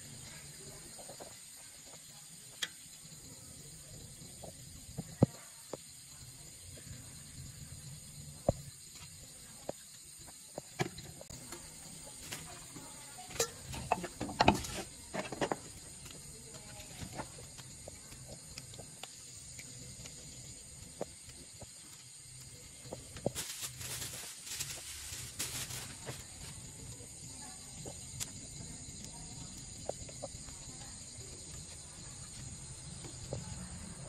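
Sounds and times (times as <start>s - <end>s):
knife and pot clattering: 13.3s - 15.6s.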